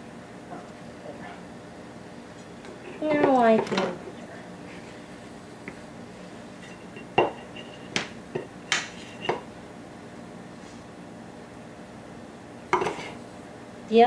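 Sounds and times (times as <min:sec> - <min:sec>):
metal bowl and utensils clinking: 0:02.8 - 0:04.0, 0:06.6 - 0:09.5.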